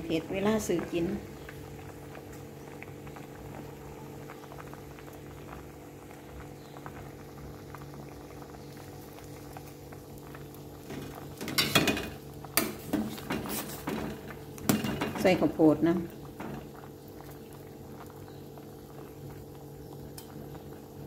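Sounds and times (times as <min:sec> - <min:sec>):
soup boiling in a pot: 0:00.0 - 0:21.0
metal ladle clattering against pot: 0:11.4 - 0:14.1.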